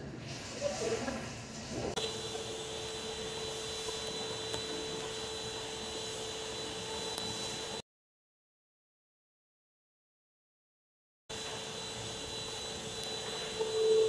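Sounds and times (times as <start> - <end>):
whirring drone with high whine: 1.8 - 7.8, 11.3 - 14.0.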